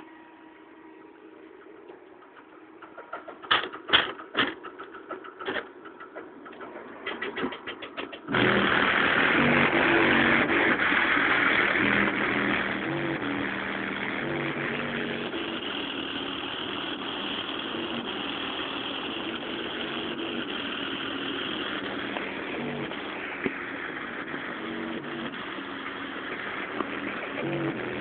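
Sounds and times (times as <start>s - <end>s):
sharp clicks: 1.9s - 16.5s
distorted bass-heavy music: 8.3s - 28.0s.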